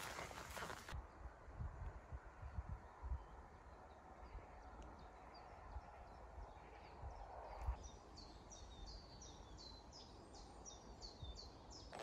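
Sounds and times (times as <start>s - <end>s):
low wind rumble: 0.0s - 11.8s
songbird chirping: 2.8s - 12.0s.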